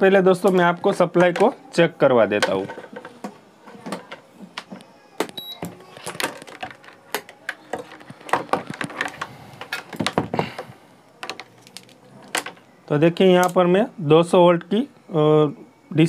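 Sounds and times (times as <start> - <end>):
plastic clicks and clatter: 2.4 - 12.6
high electronic beep: 5.4 - 5.7.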